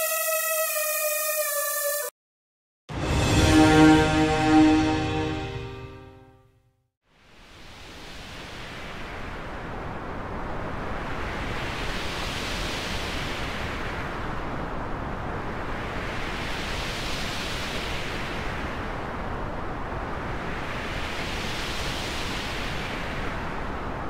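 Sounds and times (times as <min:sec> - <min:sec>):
filter-swept whoosh: 0:02.9 - 0:06.3.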